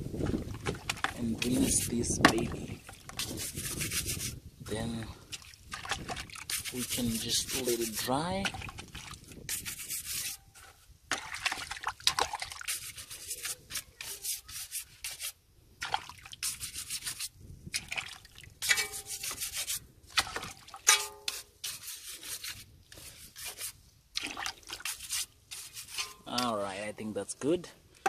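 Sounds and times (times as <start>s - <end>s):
brush scrubbing metal: 0.9s - 2.4s, 3.1s - 4.4s, 6.0s - 8.7s, 9.4s - 10.8s, 12.5s - 15.4s, 16.4s - 17.4s, 18.6s - 19.8s, 20.8s - 23.9s, 24.7s - 26.5s.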